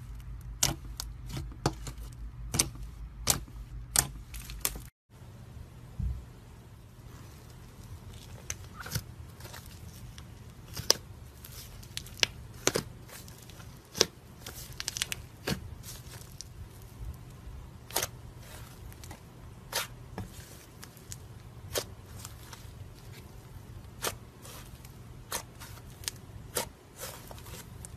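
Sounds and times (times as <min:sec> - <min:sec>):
slime popping and crackling: 0:10.7 - 0:16.6.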